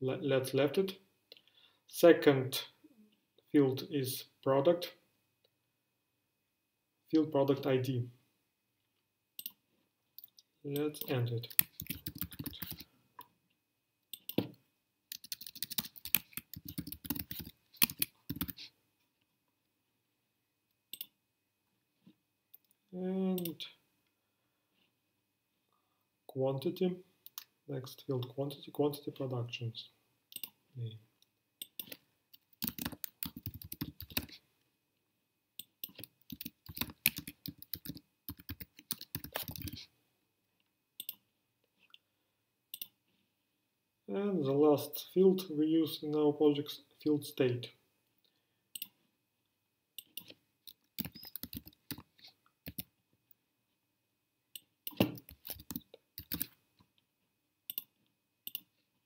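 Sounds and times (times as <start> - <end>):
typing on keyboard: 11.4 - 12.8, 15.1 - 18.6, 31.6 - 34.4, 35.6 - 39.8, 50.0 - 52.9, 54.9 - 56.6.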